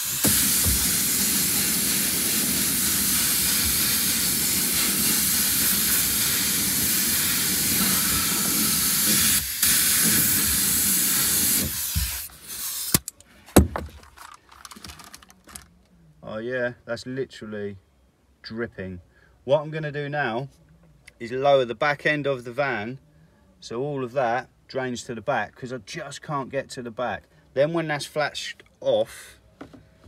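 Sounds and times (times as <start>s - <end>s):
spray gun hissing: 0.0s - 13.0s
sharp knocks: 13.6s - 14.0s.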